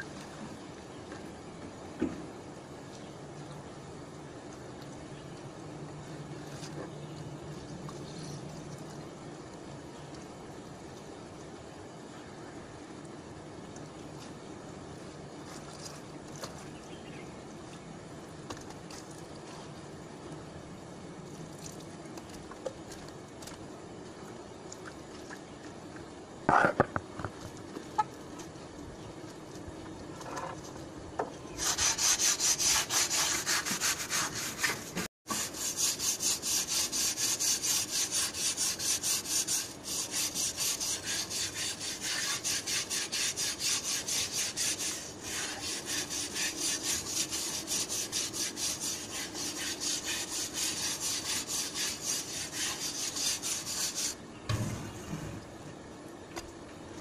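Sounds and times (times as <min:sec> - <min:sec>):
scrubbing wet concrete floor: 0:31.6 - 0:54.2.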